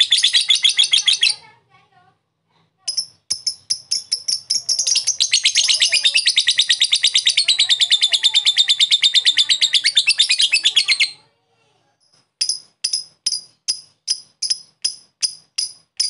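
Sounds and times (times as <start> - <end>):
lovebird rattling trill: 2.9 - 11.1, 12.4 - 16.0.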